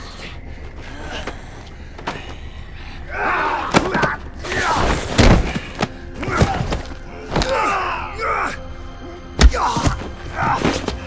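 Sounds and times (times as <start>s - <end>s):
men grunting and shouting: 3.0s - 5.0s, 6.2s - 11.0s.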